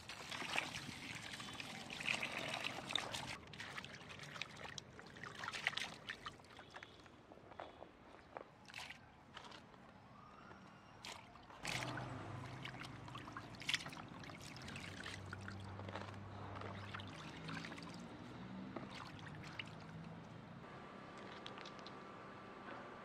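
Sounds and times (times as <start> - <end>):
water splashing and dripping: 0.0 - 7.0, 11.0 - 20.4, 21.1 - 22.0.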